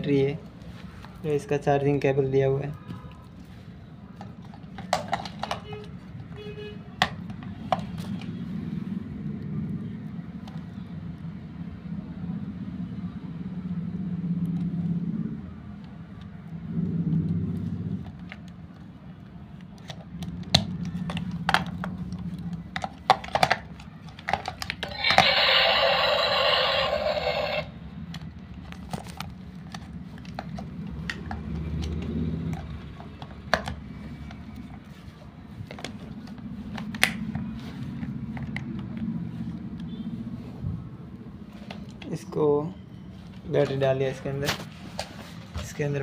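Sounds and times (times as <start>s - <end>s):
loud noisy sound: 24.8s - 27.8s.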